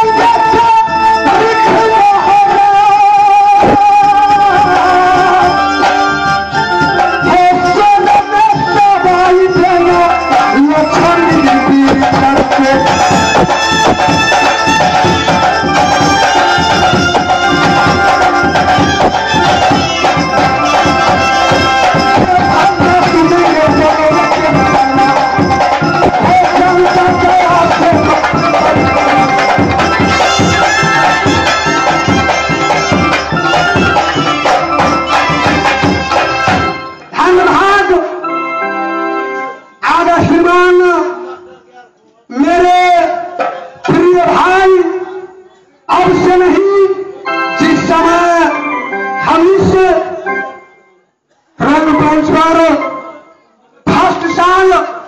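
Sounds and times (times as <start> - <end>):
hand drums beating: 3.4 - 37.0
wavering melody line: 4.0 - 37.2.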